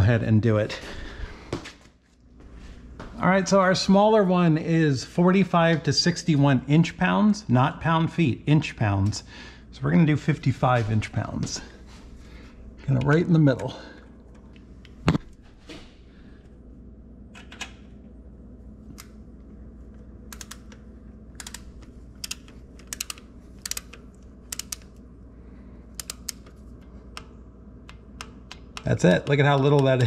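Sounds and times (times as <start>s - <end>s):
torque wrench ratcheting clicks: 21.4s - 24.9s.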